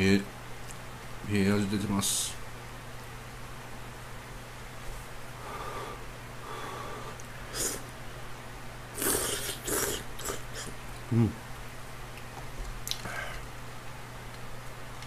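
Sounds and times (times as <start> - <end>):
electric fan running: 0.0 - 15.0
slurping noodles: 7.5 - 7.8, 9.0 - 10.8.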